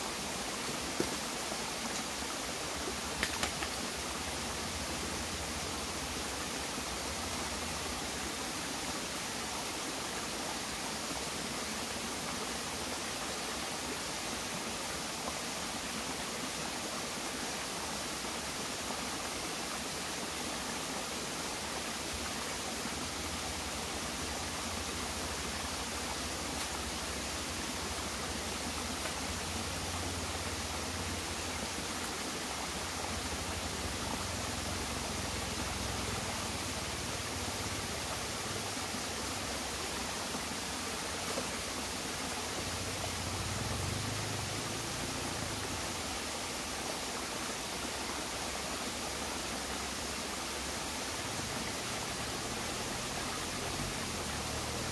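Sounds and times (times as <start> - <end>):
stream running over rocks: 0.0 - 54.9.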